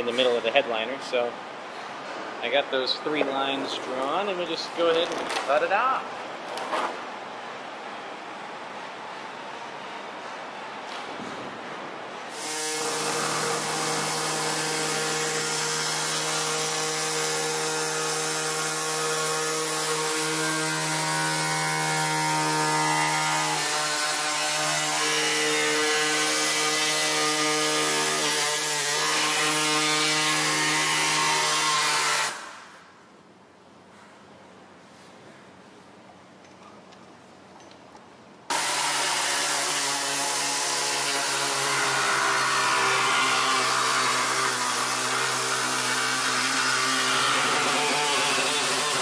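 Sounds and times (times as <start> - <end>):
air saw buzzing through panel: 12.3 - 32.6, 38.5 - 49.0.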